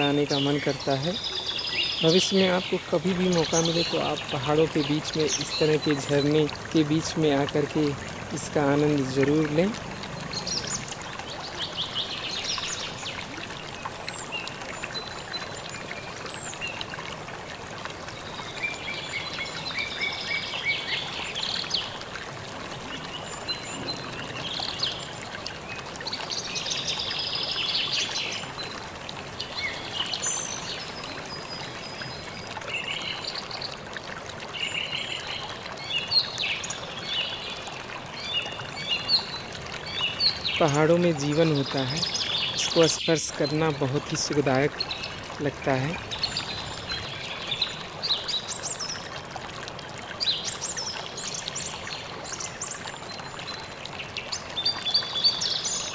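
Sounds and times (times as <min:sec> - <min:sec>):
small birds chirping: 0:00.0 - 0:17.1, 0:34.5 - 0:49.2
waterfall pouring onto rock: 0:02.0 - 0:55.9.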